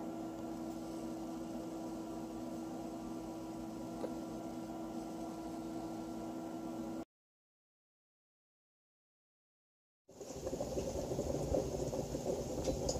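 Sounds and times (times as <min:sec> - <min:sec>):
low electrical hum: 0:00.0 - 0:07.0.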